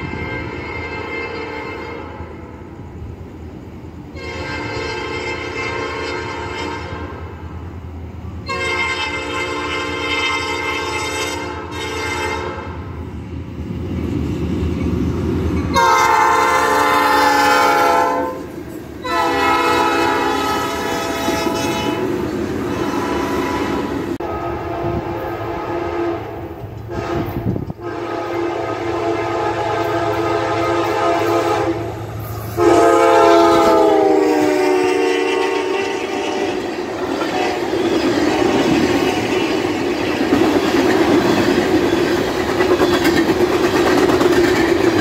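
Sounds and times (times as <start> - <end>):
locomotive air horn blasts: 0.0 - 2.4, 4.1 - 7.2, 8.4 - 12.8, 15.7 - 36.6
low rumble of train: 0.0 - 45.0.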